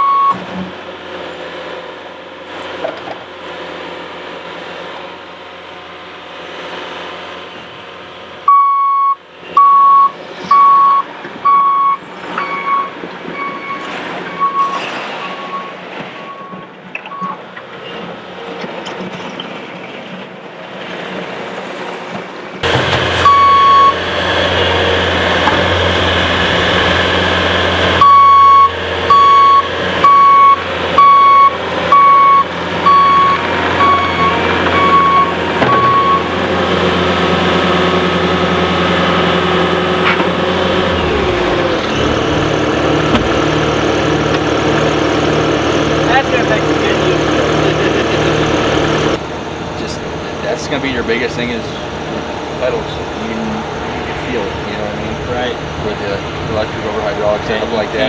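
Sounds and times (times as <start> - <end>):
backup alarm beeping: 0.0 - 0.4, 8.5 - 17.4, 23.2 - 24.0, 28.0 - 36.3
diesel engine running: 0.0 - 58.0.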